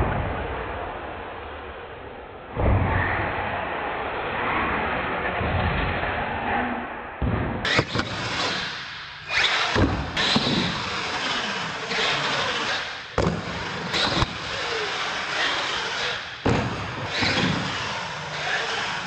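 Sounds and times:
truck hitting ramps: 0:07.6 - 0:19.0
tyre noise on concrete: 0:07.6 - 0:19.0
toy truck motor revving: 0:07.7 - 0:16.3, 0:17.1 - 0:19.0.

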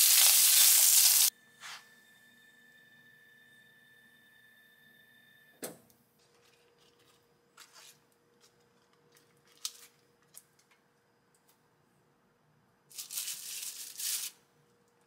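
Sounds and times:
faint steady whine: 0:01.3 - 0:07.5.

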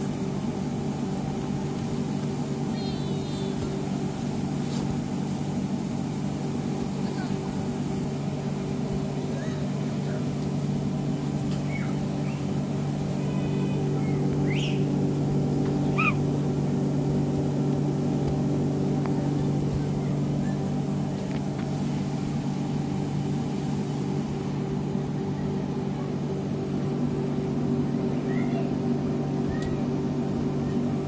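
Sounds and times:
electric air blower droning: 0:00.0 - 0:31.0
child calling: 0:13.2 - 0:14.8, 0:15.9 - 0:16.2, 0:28.2 - 0:28.8.

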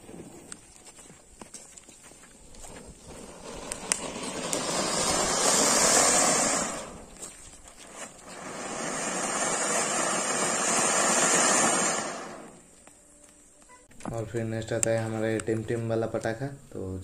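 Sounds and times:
small crackles: 0:00.0 - 0:05.2, 0:06.7 - 0:08.5, 0:12.4 - 0:16.4
firework spraying sparks hiss: 0:02.9 - 0:12.8.

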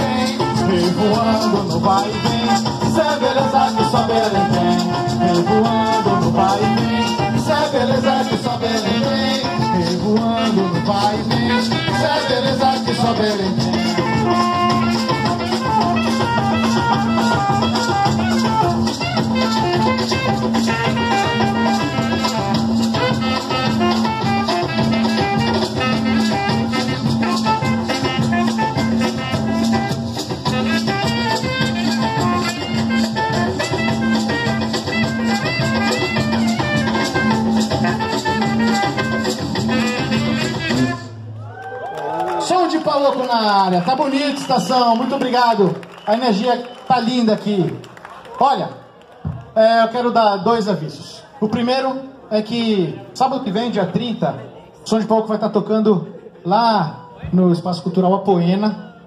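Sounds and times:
hand drums beating: 0:00.0 - 0:41.0
maracas shaking: 0:00.0 - 0:41.0.

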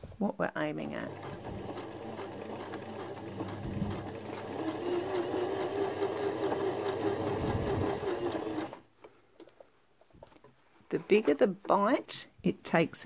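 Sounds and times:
sewing machine stitching: 0:00.8 - 0:08.8.

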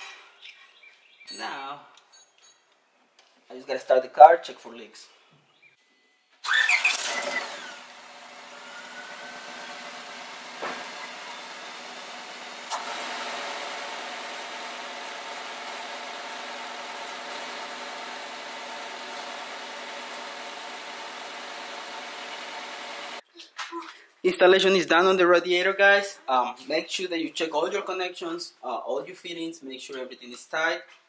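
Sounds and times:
car engine idling: 0:07.6 - 0:23.2.

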